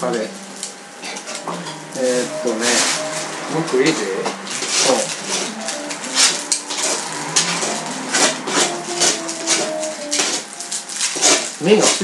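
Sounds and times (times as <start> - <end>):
utensils scraping on a pan: 0.6 - 12.0.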